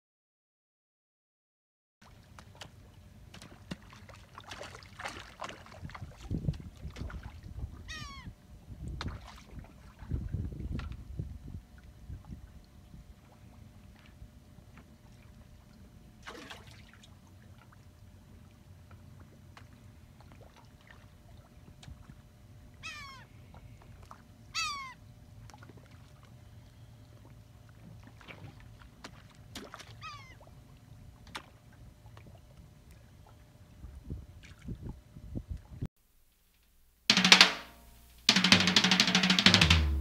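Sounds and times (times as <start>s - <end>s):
animal calls falling in pitch: 7.9s - 8.3s.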